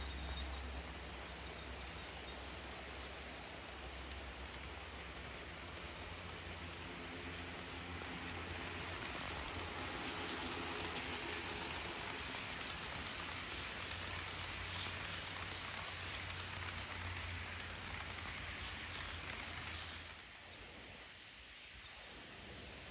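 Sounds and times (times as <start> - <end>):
model train wheels rattling hiss: 0.0 - 22.6
faint locomotive whine: 0.0 - 22.9.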